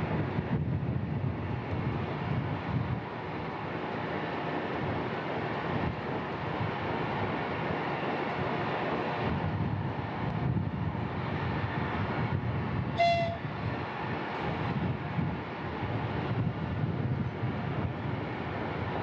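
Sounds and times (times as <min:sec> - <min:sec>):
short horn-like tone: 0:13.0 - 0:13.5.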